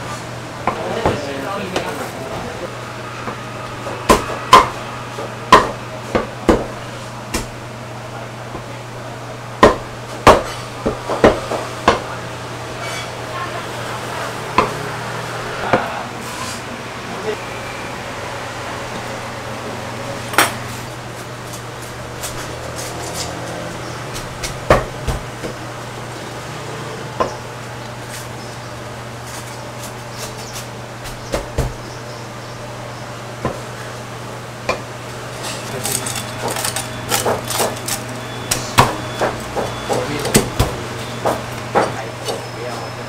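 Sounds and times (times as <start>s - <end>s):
cleaver chopping on wooden block: 4.1s - 4.7s.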